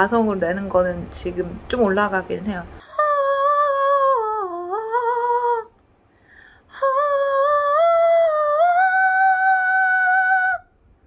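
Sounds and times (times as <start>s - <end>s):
woman breathing: 6.0s - 6.8s.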